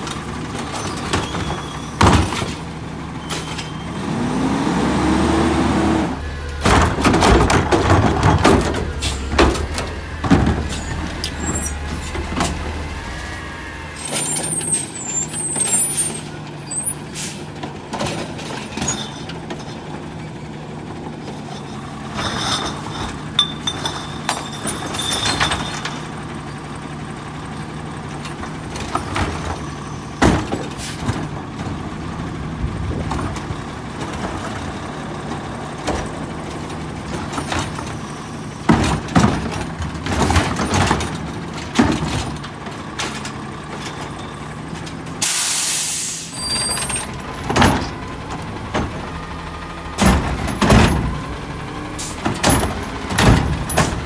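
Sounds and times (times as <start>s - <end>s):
knocks and clanks of cart: 0.0s - 3.8s, 6.2s - 13.4s, 17.5s - 45.2s, 46.4s - 54.0s
garbage truck engine running: 0.0s - 54.0s
hydraulic arm lifting cart: 0.2s - 17.6s.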